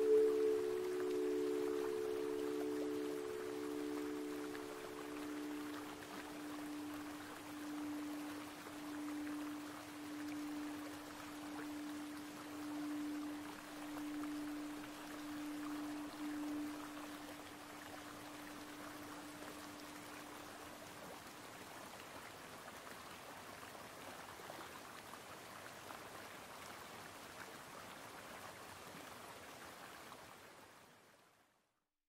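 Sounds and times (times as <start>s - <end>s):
singing bowl tone: 0.0s - 21.2s
running water: 0.0s - 30.6s.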